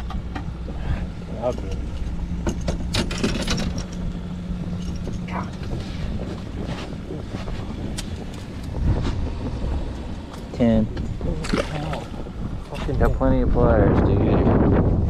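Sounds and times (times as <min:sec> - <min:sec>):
steady low hum: 0:00.0 - 0:15.0
wind buffeting microphone: 0:00.0 - 0:15.0.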